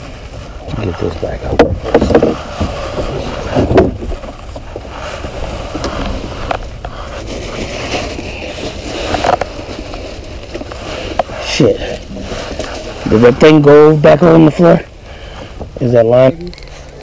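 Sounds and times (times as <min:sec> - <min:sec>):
water noise around boat: 0:00.0 - 0:17.0
wind: 0:00.0 - 0:17.0
knocks of gear in boat: 0:01.4 - 0:06.8.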